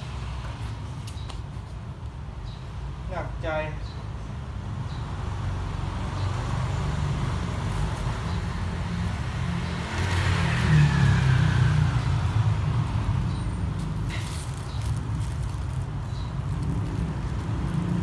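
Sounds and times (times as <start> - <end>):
vehicle passing close by: 5.3 - 15.8, 16.4 - 18.0.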